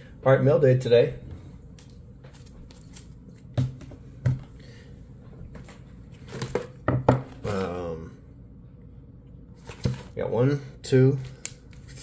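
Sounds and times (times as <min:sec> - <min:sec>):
packages knocking on table: 0:06.4 - 0:07.4
person speaking: 0:07.4 - 0:08.2.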